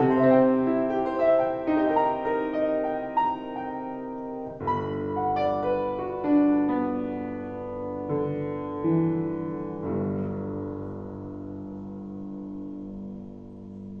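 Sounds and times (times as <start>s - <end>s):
piano chords: 0.0s - 14.0s.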